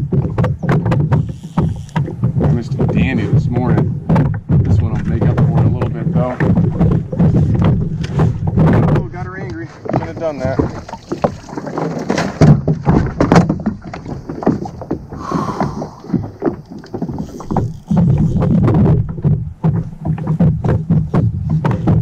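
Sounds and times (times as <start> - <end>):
water slapping against kayak: 0.0 - 22.0
wind rumbling on microphone: 0.0 - 22.0.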